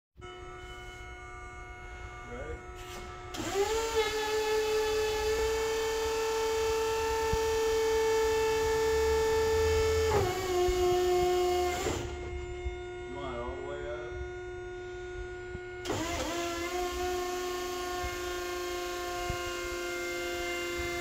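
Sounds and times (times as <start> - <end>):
hydraulic pump motor whining: 0.2 - 21.0.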